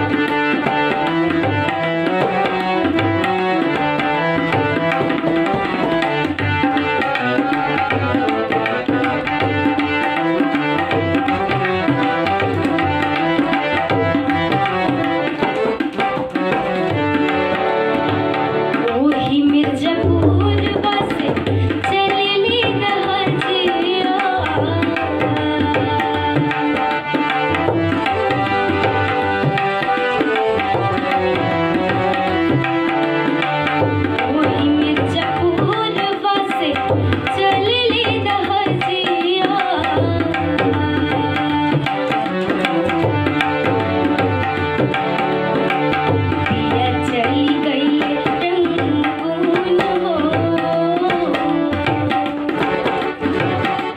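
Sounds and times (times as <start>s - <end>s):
tabla rhythm: 0.0s - 53.9s
girl singing: 18.9s - 26.5s, 34.2s - 41.9s, 46.6s - 53.0s.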